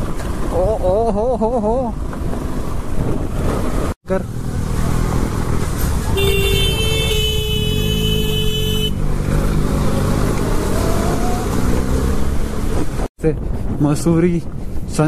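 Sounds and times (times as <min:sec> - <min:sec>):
motorcycle engine: 0:02.0 - 0:13.1
vehicle horn: 0:06.1 - 0:09.0
wind rush: 0:09.8 - 0:15.0.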